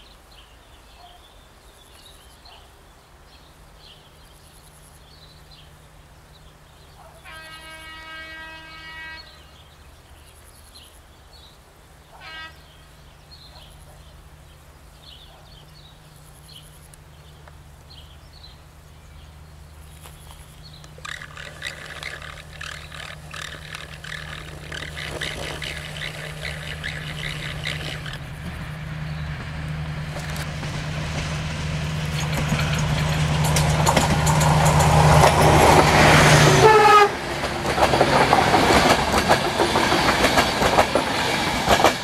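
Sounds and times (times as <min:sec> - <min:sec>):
small birds chirping: 0:12.6 - 0:29.4
locomotive engine humming: 0:18.6 - 0:42.0
train wheels rattling: 0:21.0 - 0:42.0.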